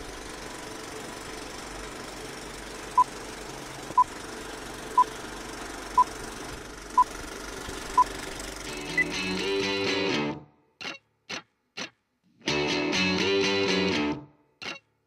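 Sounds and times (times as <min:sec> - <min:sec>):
whirring crackly projector noise: 0:00.0 - 0:09.4.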